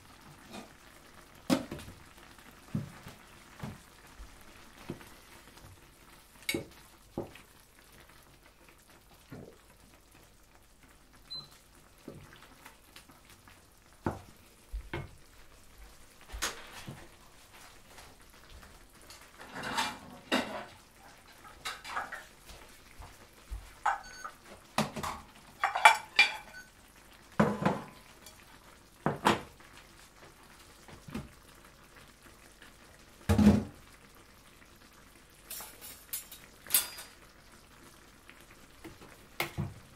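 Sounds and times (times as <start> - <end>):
spatula knocking and scraping pan: 19.4 - 22.3, 27.4 - 28.4.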